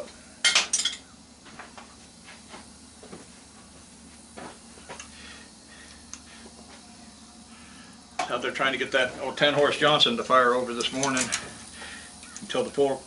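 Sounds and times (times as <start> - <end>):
hand tools clicking and tapping: 10.8 - 11.5, 12.2 - 12.6.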